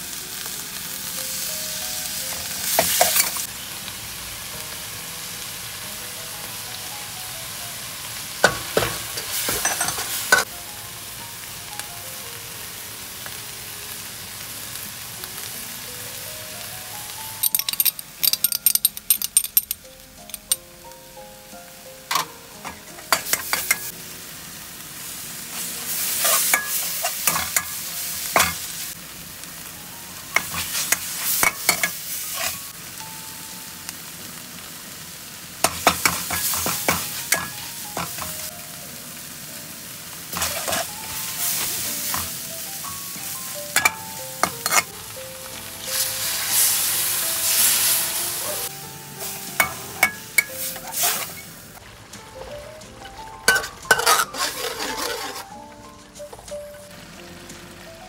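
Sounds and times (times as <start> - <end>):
curry paste sizzling in a wok: 0.0 - 58.0
metal spatula scraping pan: 26.1 - 27.8, 30.4 - 32.6, 40.4 - 42.3, 44.6 - 44.9, 49.6 - 51.5, 53.5 - 55.6.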